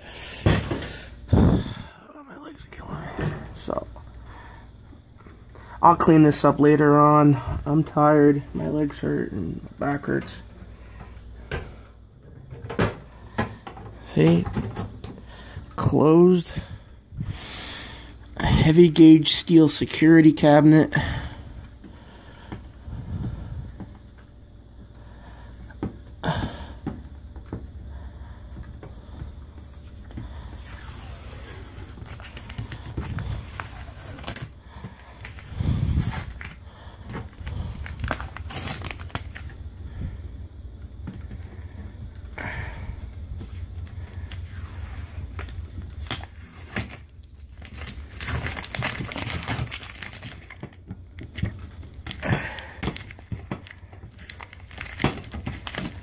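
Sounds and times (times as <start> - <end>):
label tearing and crinkling: 29.7 - 39.7, 43.4 - 56.0.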